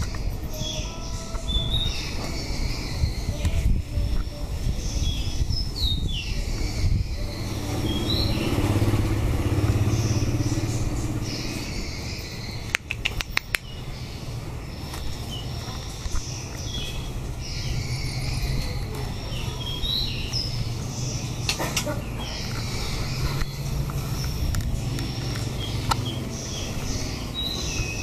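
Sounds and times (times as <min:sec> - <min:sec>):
small birds chirping: 0:00.0 - 0:28.0
motor engine running: 0:07.0 - 0:12.1
sharp clicks: 0:12.6 - 0:13.8.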